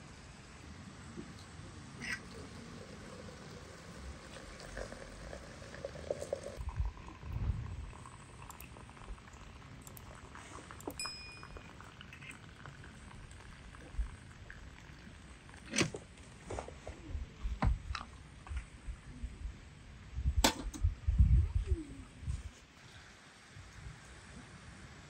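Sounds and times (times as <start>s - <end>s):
metal and glass clinks: 11.0s - 11.8s.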